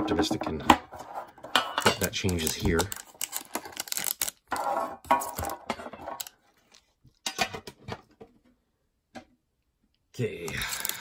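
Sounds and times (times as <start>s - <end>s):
plastic wrapping crinkling: 2.0s - 4.6s.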